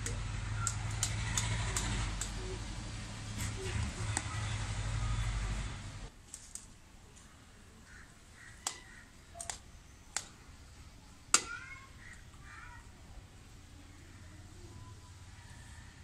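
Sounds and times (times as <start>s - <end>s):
faint bird calls: 7.1s - 15.8s.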